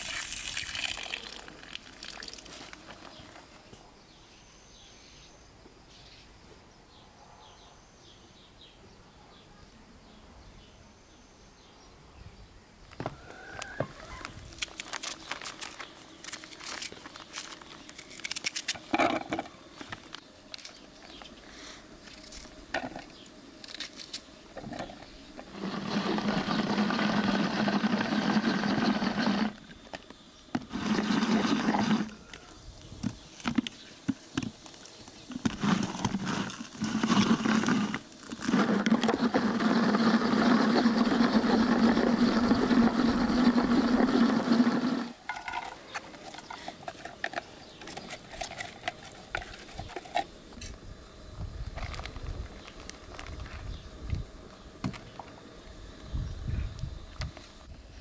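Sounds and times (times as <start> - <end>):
hand-cranked chopper whirring: 25.5 - 29.7, 30.6 - 32.2, 35.4 - 45.2.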